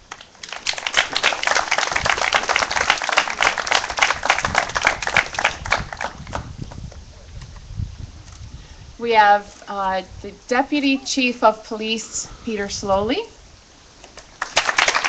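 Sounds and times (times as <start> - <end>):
crowd applauding: 0.0 - 6.5, 14.2 - 15.0.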